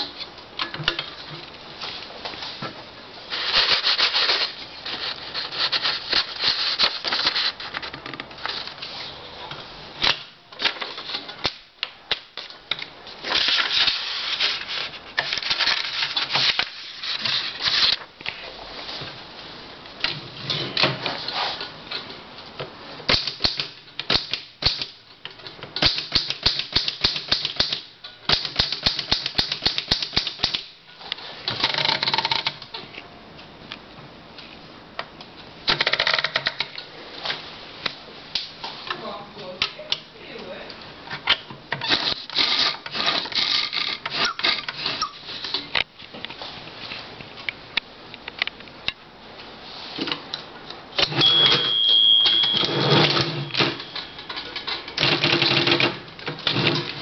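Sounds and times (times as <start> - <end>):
manual typewriter typing: 25.8 - 30.7, 31.6 - 32.7, 35.7 - 36.7, 52.3 - 57.0.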